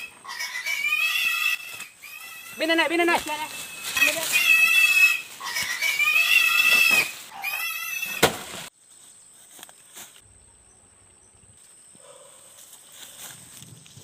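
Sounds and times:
animal cries: 0.0s - 2.9s, 3.6s - 8.2s.

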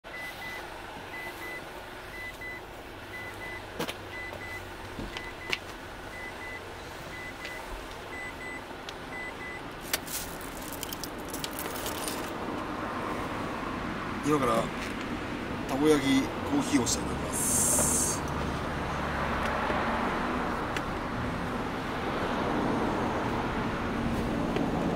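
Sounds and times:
car warning chime beeping: 0.1s - 9.7s
knocks and rattle of gear: 9.8s - 12.4s.

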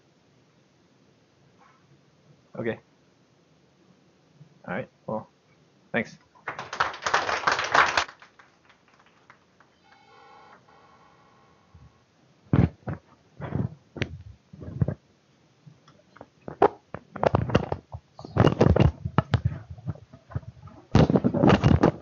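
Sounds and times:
microphone handling knocks and rustles: 12.5s - 15.0s, 16.4s - 22.0s.

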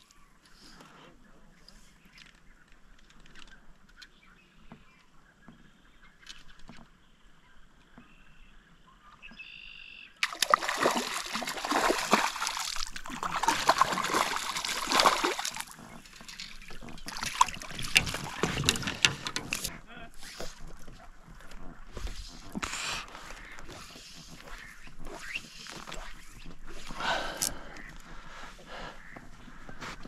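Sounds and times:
fish splashing at water surface: 10.2s - 19.5s.

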